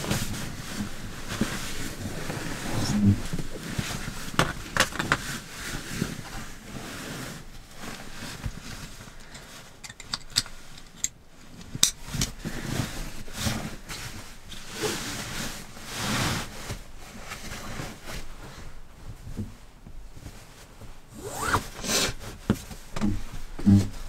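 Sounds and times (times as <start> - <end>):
fabric rustling and swishing: 0.0 - 9.8, 11.4 - 24.0
drawstring being pulled: 21.2 - 22.0.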